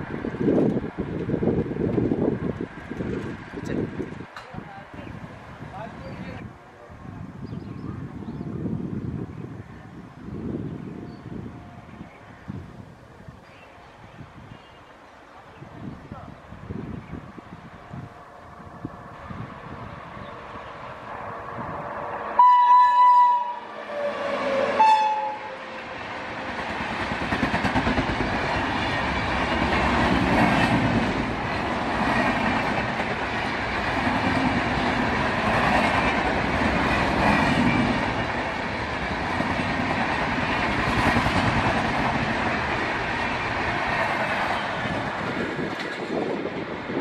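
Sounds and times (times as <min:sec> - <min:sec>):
locomotive horn: 0:22.3 - 0:25.9
train wheels clacking on rails: 0:25.6 - 0:46.4.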